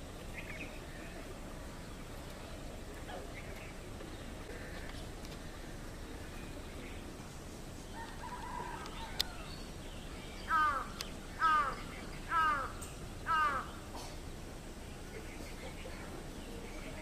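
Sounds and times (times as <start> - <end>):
crow cawing: 10.5 - 13.8.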